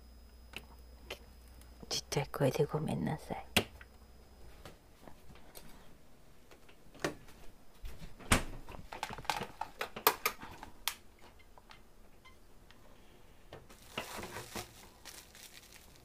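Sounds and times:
plastic-wrapped bread clicking: 8.9 - 11.0, 13.7 - 16.0.

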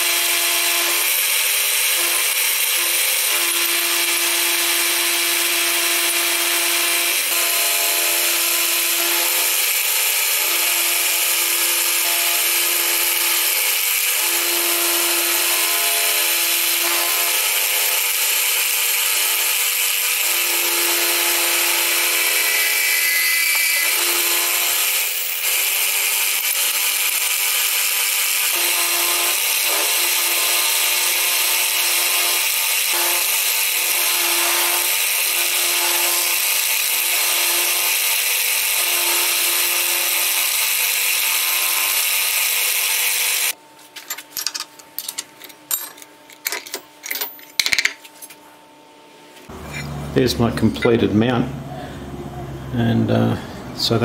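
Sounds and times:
milling machine cutting metal: 0.0 - 43.6.

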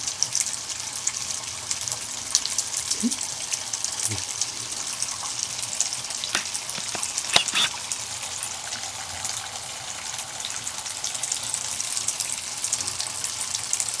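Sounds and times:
water running into bathtub: 0.2 - 14.0
sharp clicks: 6.3 - 7.8.

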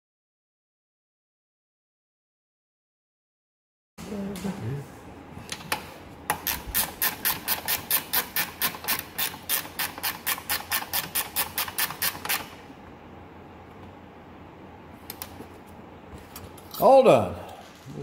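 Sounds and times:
ratchet wrench clicking: 6.4 - 12.5.

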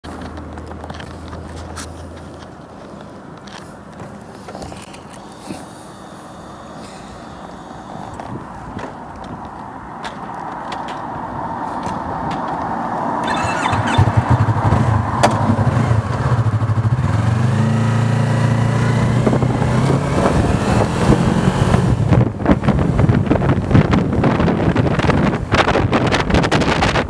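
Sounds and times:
motorcycle engine accelerating: 13.2 - 24.0
wind buffeting microphone: 18.5 - 27.0.

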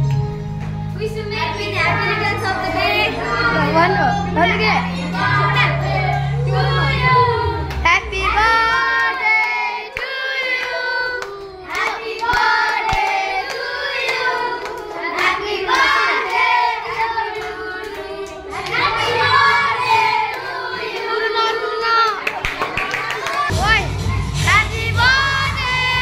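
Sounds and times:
children singing: 1.4 - 23.5, 24.5 - 26.0
hand clapping: 8.7 - 16.5, 22.2 - 23.5.

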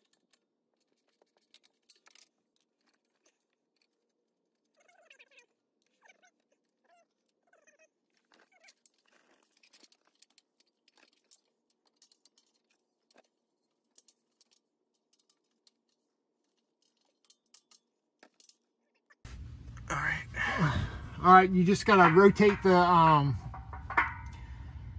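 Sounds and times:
faint metallic clicks and clinks: 0.0 - 19.8, 21.6 - 24.9.

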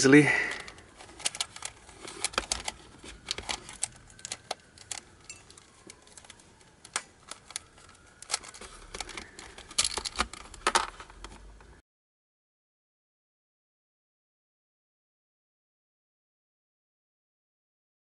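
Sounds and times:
plastic puzzle pieces clicking: 0.5 - 11.4.

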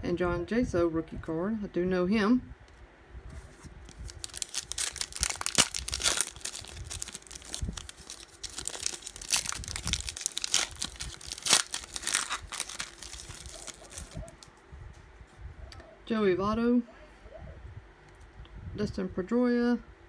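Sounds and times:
foil wrapper tearing and crinkling: 3.9 - 14.5.

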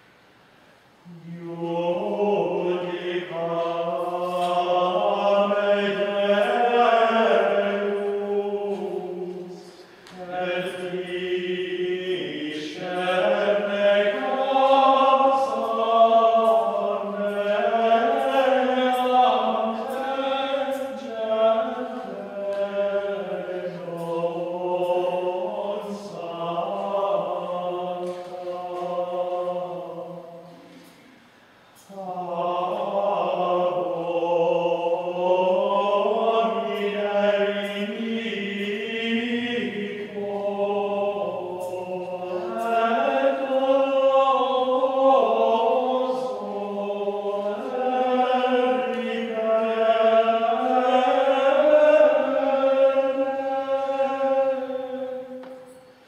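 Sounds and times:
choir chanting: 1.0 - 31.2, 31.8 - 56.0.

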